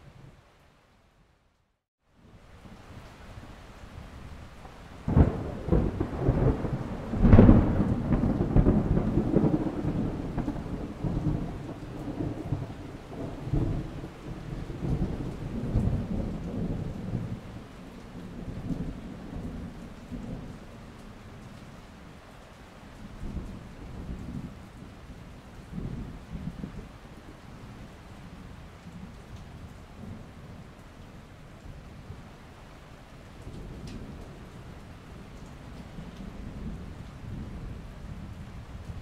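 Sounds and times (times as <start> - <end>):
steady rain: 0.0 - 39.0
thunder: 5.0 - 17.5.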